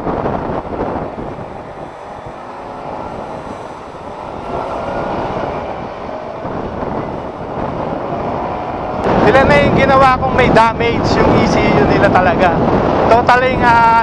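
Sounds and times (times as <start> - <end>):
motorcycle engine running: 0.0 - 10.3
wind and road noise: 0.0 - 14.0.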